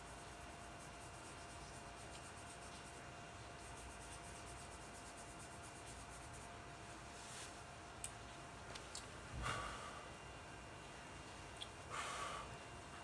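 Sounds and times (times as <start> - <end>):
brush rubbing on paper: 0.0 - 6.6.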